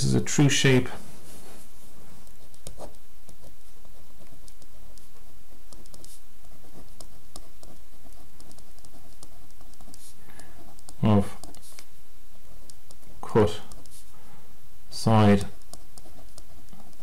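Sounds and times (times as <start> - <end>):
pen scratching on paper: 2.2 - 11.8.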